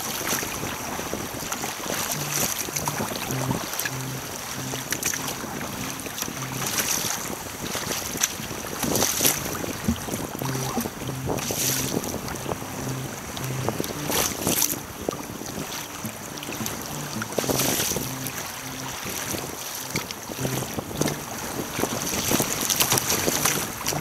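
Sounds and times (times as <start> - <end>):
sea water sloshing and splashing: 0.0 - 24.0
wind buffeting microphone: 0.0 - 24.0
faint low repeating notes: 2.0 - 7.5, 9.3 - 24.0.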